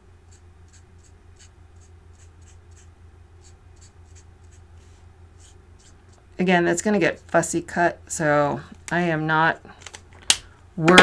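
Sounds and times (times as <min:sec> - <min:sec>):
steady low hum: 0:00.0 - 0:11.0
marker stroking on cardstock: 0:00.3 - 0:04.7, 0:05.4 - 0:06.2.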